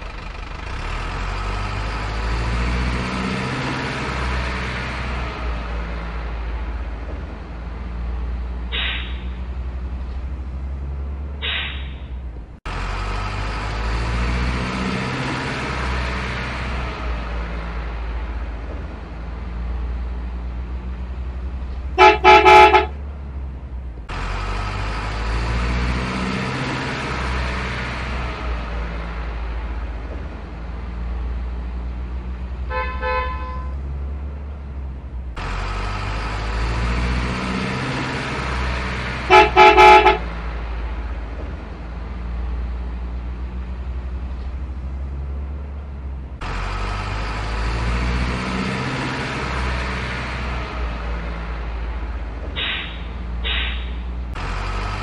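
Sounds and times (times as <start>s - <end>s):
diesel engine drone: 0.0s - 55.0s
truck horn honking: 22.0s - 23.1s, 32.6s - 33.8s, 39.2s - 40.4s.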